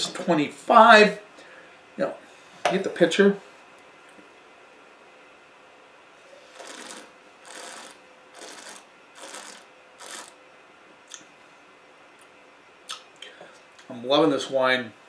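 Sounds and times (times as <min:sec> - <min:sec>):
slurping wine hisses: 0:06.4 - 0:10.3.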